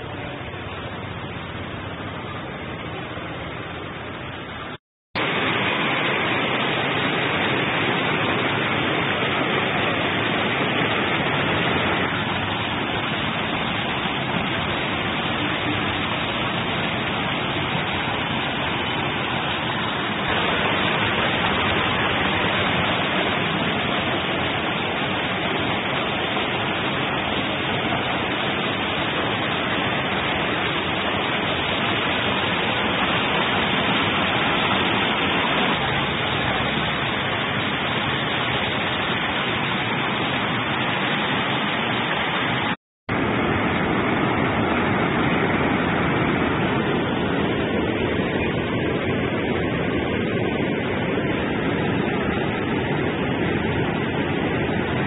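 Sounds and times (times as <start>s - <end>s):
water rushing between boulders: 0.0s - 55.0s.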